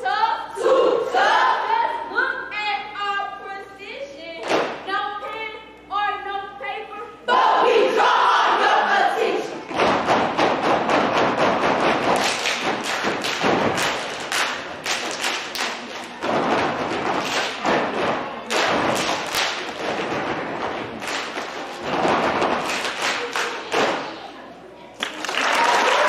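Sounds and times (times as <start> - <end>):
stomping feet: 9.6 - 24.2
hands clapping: 9.7 - 16.3, 16.9 - 17.8, 18.4 - 20.2, 20.9 - 24.2, 25.0 - 26.0.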